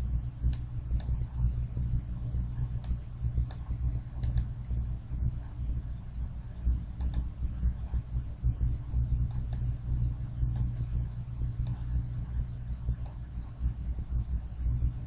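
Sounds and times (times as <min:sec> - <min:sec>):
steady low hum: 0:00.0 - 0:15.0
computer mouse clicking: 0:00.5 - 0:01.2, 0:02.8 - 0:04.5, 0:07.0 - 0:07.3, 0:09.2 - 0:09.7, 0:10.5 - 0:10.8.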